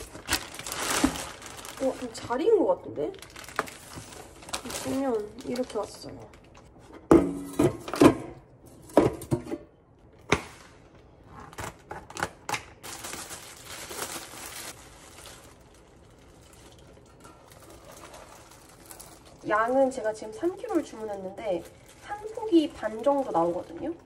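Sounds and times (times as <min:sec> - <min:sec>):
plastic crinkling: 0:00.0 - 0:06.9, 0:10.5 - 0:24.0
metal container clacking: 0:16.4 - 0:19.5.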